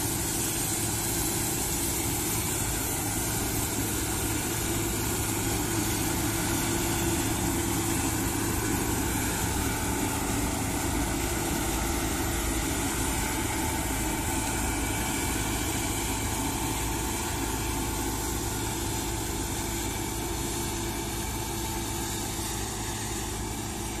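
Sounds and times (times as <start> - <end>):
combine harvester humming: 0.0 - 24.0.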